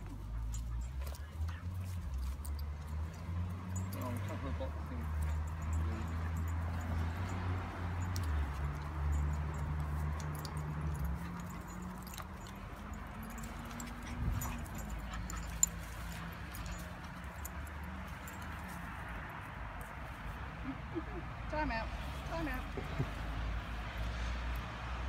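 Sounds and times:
harness fittings jingling: 0.0s - 20.0s
dogs play-growling: 10.2s - 17.2s.

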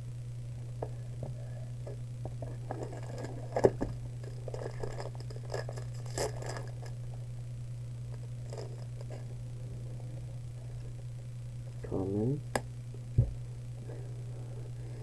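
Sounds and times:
steady low hum: 0.0s - 15.0s
crisp crinkle: 2.3s - 7.3s, 8.1s - 9.3s
cards rustling: 2.6s - 7.0s.

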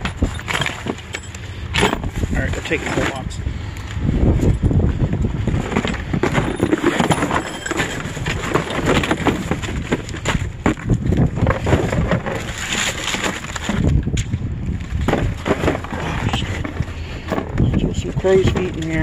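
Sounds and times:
low wind rumble on microphone: 0.0s - 19.0s
cardboard box rustling and crackling: 4.4s - 19.0s.

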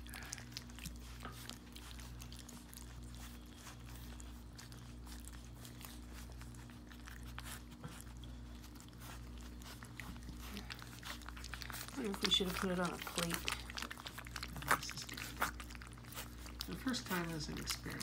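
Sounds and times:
puppies lapping from metal pan: 0.0s - 18.0s.

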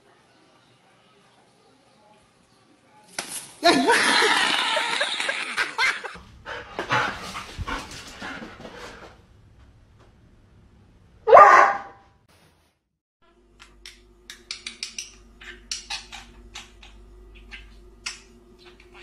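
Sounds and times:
dog barking: 11.3s - 12.0s.

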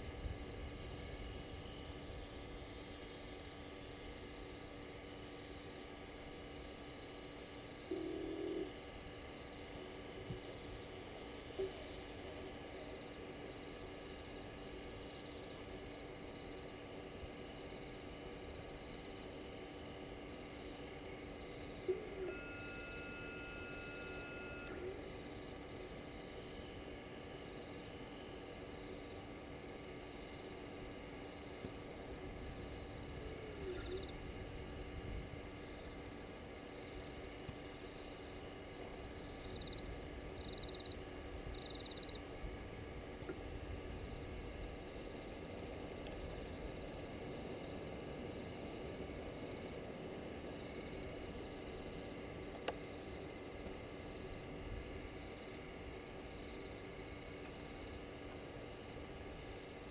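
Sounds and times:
crickets trilling: 0.0s - 59.9s
insects chirping: 0.0s - 59.9s
faint click: 52.6s - 52.8s.

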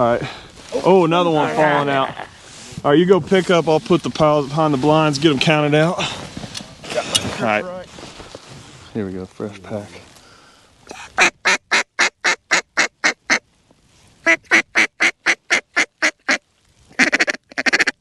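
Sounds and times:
duck call quacks: 11.2s - 13.4s, 14.2s - 16.4s, 17.0s - 18.0s.

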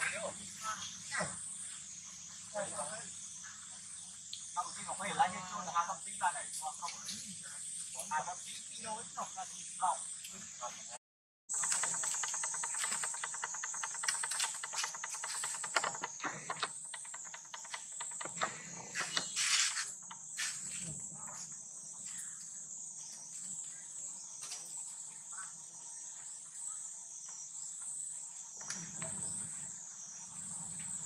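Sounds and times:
high-pitched insect drone: 0.0s - 31.0s
rapid clicking: 11.5s - 20.4s.

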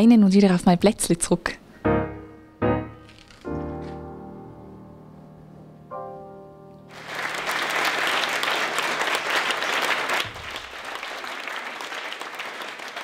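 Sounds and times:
held musical chord: 1.8s - 7.0s
audience applause: 6.9s - 13.0s.

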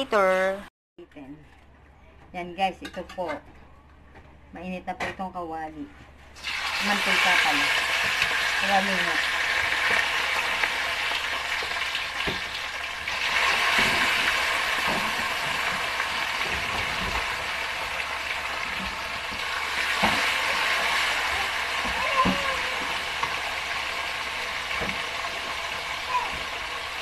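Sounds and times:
fish sizzling in hot oil: 6.4s - 27.0s.

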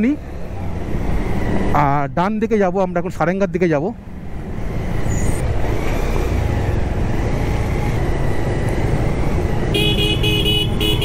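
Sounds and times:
wind and road noise: 0.0s - 11.0s
vehicle horn beeps: 9.7s - 11.0s.

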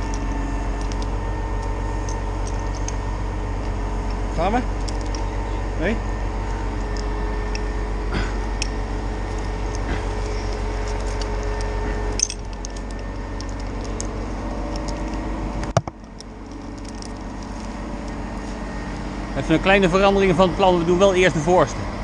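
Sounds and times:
chain links clinking: 0.0s - 5.7s, 6.4s - 7.8s, 8.4s - 15.3s, 16.0s - 18.2s
crane engine hum: 0.0s - 22.0s.

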